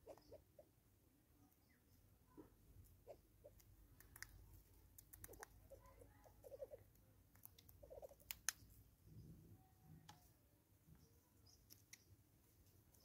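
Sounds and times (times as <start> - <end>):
faint bird clucking: 0.0 - 0.8, 1.5 - 4.3, 5.2 - 8.4
sharp clicks: 7.3 - 8.6.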